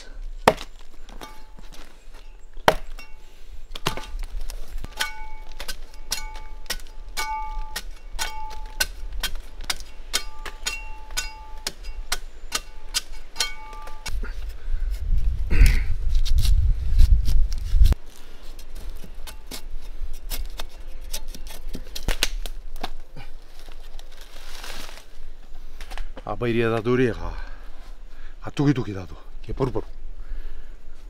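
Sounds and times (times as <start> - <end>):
machete chopping bark: 0.4 - 0.8, 2.6 - 3.0.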